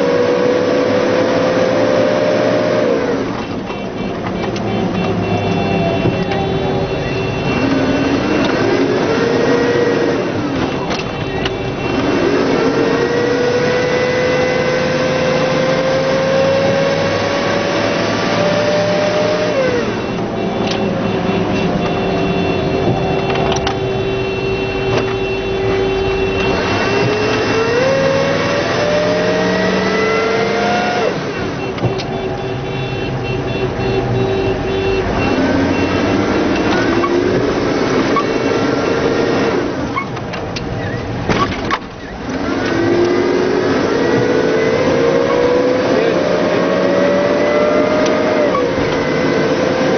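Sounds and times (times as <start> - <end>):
drivetrain whine: 0.0 - 49.9.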